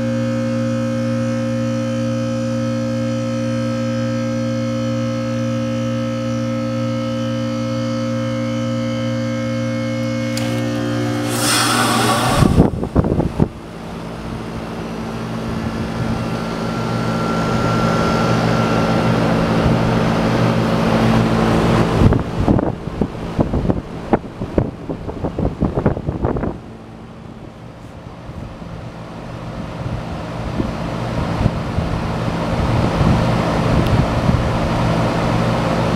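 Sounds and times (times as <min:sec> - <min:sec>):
heat pump compressor hum: 0:00.0 - 0:35.9
wind gusts on microphone: 0:10.8 - 0:14.8, 0:17.5 - 0:26.8, 0:29.7 - 0:35.2.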